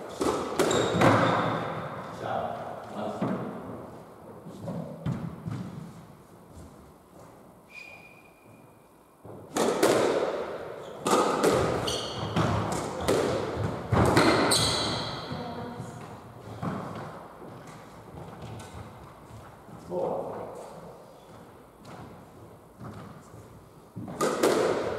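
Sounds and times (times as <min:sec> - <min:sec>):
squash ball strikes: 0:00.1 - 0:02.0, 0:09.2 - 0:15.4, 0:24.0 - 0:24.9
shoes squeaking on wooden floor: 0:00.6 - 0:02.1, 0:11.7 - 0:19.8.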